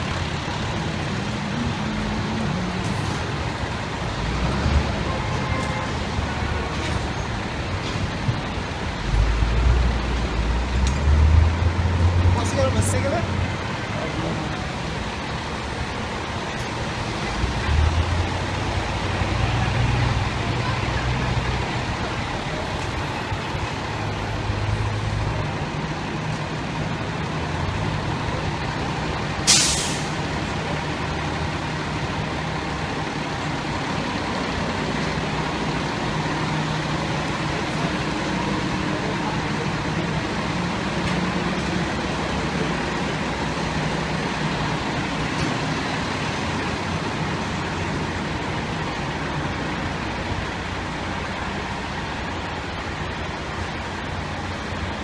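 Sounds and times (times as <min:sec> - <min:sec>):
diesel engine idling: 0:00.0 - 0:04.4
air brakes hiss: 0:29.4 - 0:30.2.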